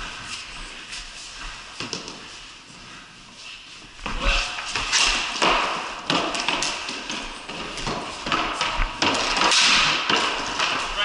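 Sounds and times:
hockey sticks clacking on concrete: 1.8s - 2.3s, 4.2s - 11.0s.

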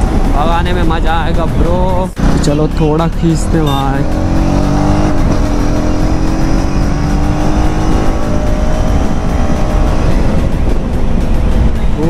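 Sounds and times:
motorcycle engine accelerating: 2.1s - 12.0s
wind rush on microphone: 4.5s - 12.0s.

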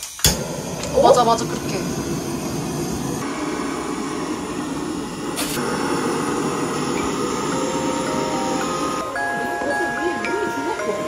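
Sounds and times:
steady rushing noise: 0.3s - 9.1s.

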